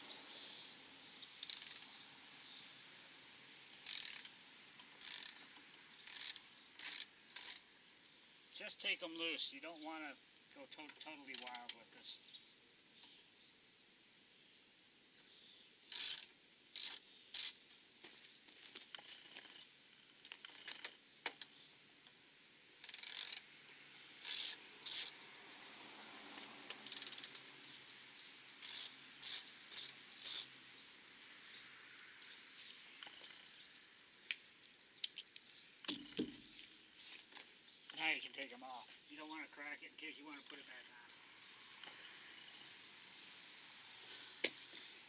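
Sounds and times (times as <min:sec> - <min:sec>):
ratchet wrench clicking: 0:01.4 - 0:01.9, 0:03.8 - 0:04.3, 0:05.0 - 0:05.4, 0:06.0 - 0:07.6, 0:11.3 - 0:11.6, 0:15.9 - 0:17.6, 0:22.8 - 0:23.4, 0:24.2 - 0:25.2, 0:26.8 - 0:27.4, 0:28.6 - 0:30.5.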